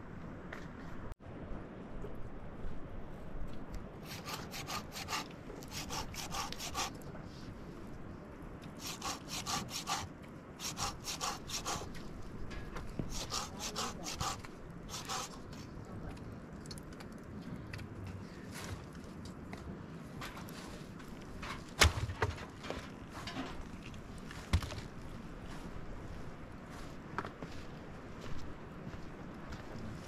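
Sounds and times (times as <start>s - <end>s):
rhythmic rubbing strokes: 13.1s - 15.4s.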